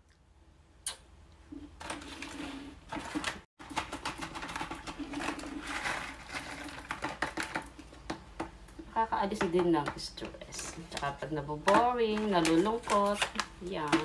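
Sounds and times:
plastic bag crinkling: 1.8 - 8.0, 10.3 - 14.0
pebbles clicking and rattling: 2.9 - 8.5.

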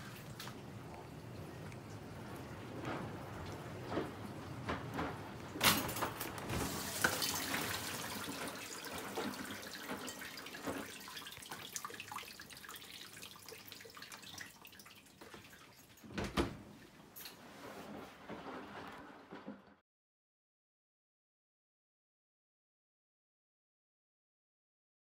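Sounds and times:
water dripping and trickling: 0.0 - 16.1
dishwasher door shutting: 2.6 - 8.4, 16.0 - 16.8.

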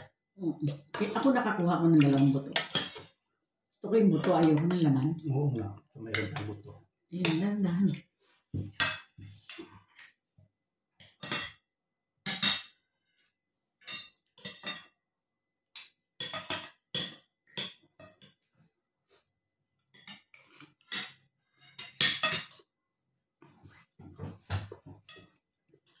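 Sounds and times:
cutlery clinking on a plate: 2.2 - 3.2, 11.0 - 11.6, 13.8 - 15.0, 15.8 - 18.4, 20.0 - 22.7.

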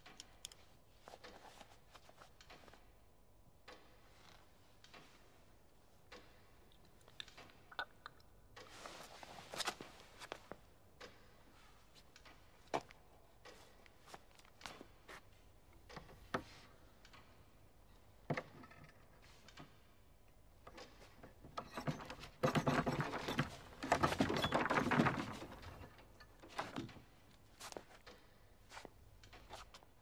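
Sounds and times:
objects knocking and clicking: 20.7 - 27.1
rapid clattering and rustling: 20.8 - 27.8.

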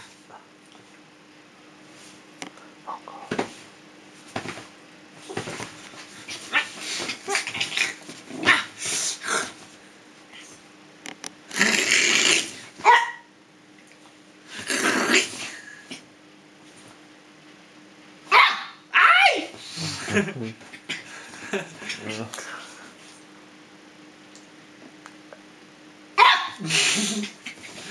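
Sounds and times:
dog growling: 11.5 - 12.6, 14.5 - 15.6
small dog barking: 12.8 - 13.3, 18.3 - 19.5, 26.2 - 26.6.

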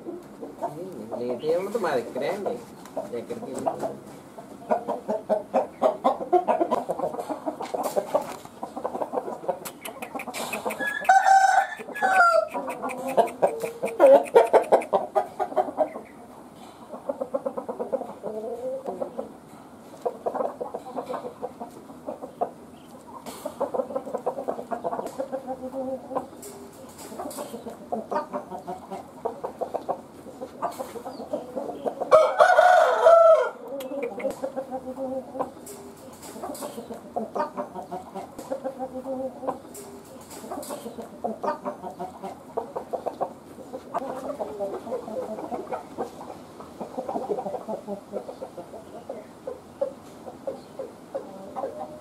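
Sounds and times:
roosters clucking and calling: 0.0 - 52.0
rooster crowing: 10.8 - 12.6, 32.1 - 33.6.

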